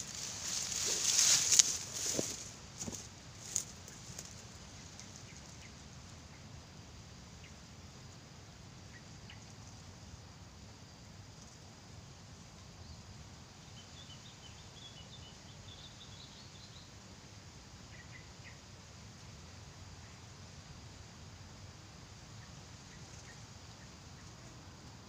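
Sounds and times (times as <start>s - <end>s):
small birds chirping: 0.0s - 6.5s, 12.7s - 17.0s
steady outdoor hiss: 0.0s - 25.0s.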